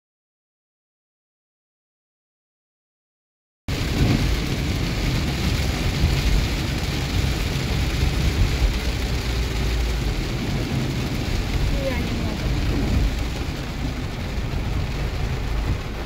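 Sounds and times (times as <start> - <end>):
car and road rumble: 3.7 - 16.0
heavy rain on a car: 3.7 - 16.0.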